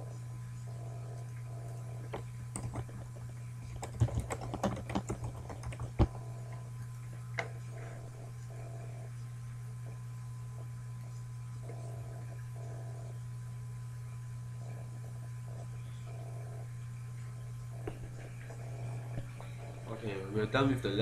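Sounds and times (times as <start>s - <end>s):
steady low hum: 0.0s - 21.0s
keyboard typing: 2.1s - 6.6s.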